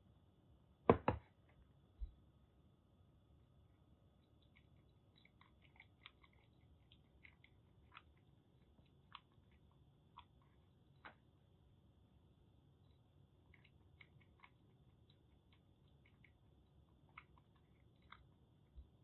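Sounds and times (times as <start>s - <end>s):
kitten lapping milk: 4.0s - 19.0s.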